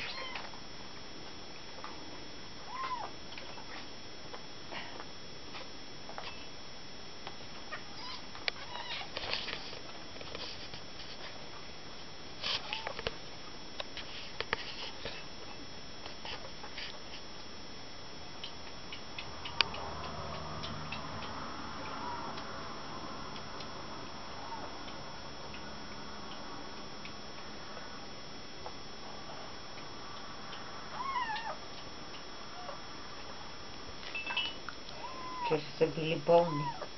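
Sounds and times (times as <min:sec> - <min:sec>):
steady low hum: 0:00.0 - 0:36.9
kitten mewing: 0:02.7 - 0:03.1, 0:30.9 - 0:31.6, 0:34.9 - 0:35.6
small clicks and rustles: 0:08.3 - 0:11.4.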